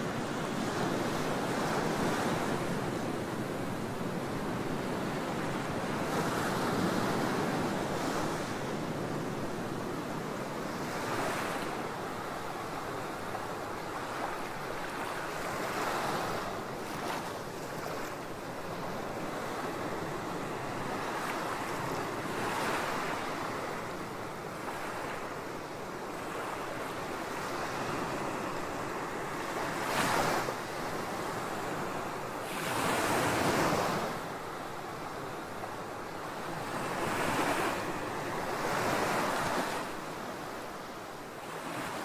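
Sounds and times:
small waves breaking on sand: 0:00.1 - 0:42.0.

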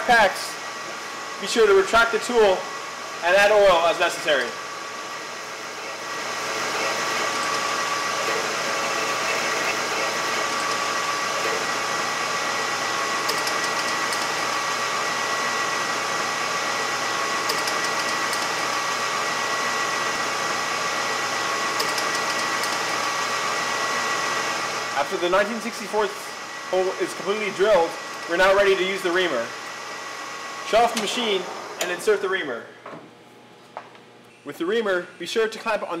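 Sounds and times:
metal lathe whining: 0:00.6 - 0:32.1
drill boring into metal: 0:03.2 - 0:25.0, 0:26.4 - 0:28.9.

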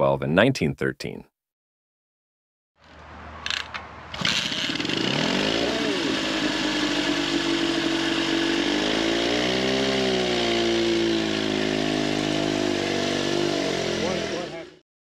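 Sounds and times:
motorcycle engine revving: 0:02.9 - 0:14.8.

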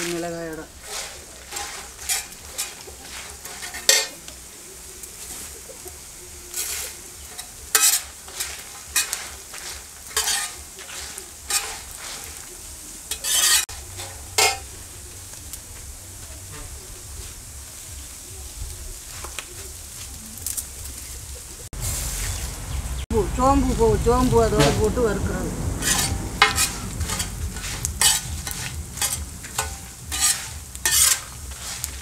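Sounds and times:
metal spatula scraping a pan: 0:00.0 - 0:17.4, 0:24.5 - 0:32.0
light sizzle: 0:00.0 - 0:32.0.

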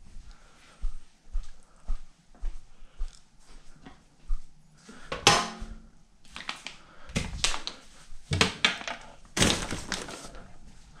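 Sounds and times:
metallic clang in steel sink: 0:05.2 - 0:05.8.

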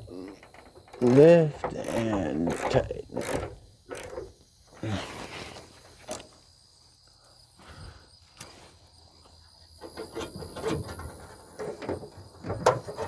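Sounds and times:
insect chirring: 0:00.0 - 0:13.0.

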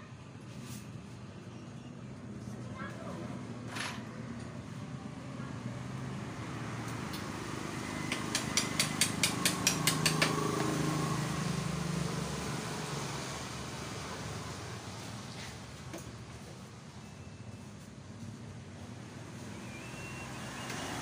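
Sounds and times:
sharp taps: 0:08.1 - 0:10.4.

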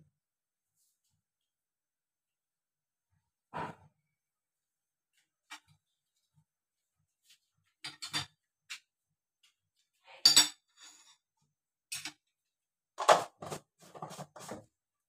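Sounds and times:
metal utensils clinking on plate: 0:07.9 - 0:08.3.

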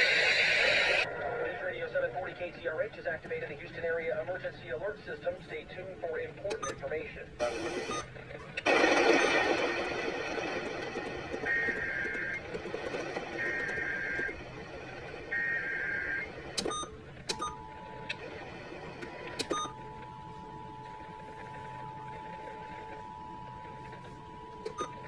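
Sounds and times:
loud burst of sound: 0:08.7 - 0:12.0
screechy digital data bursts: 0:10.9 - 0:12.5, 0:13.1 - 0:14.4.

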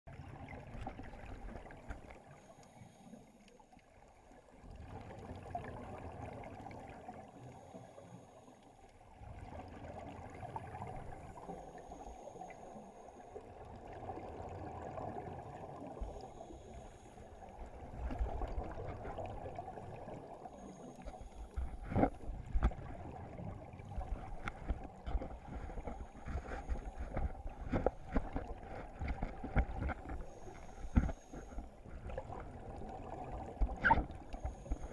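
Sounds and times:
low underwater rumble: 0:13.7 - 0:34.9
bubbles gurgling underwater: 0:31.9 - 0:34.9.

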